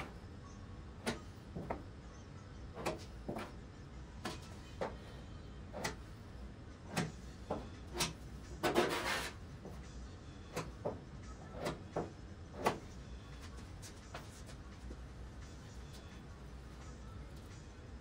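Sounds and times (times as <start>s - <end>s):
plastic spreader scraping filler: 8.0s - 9.4s.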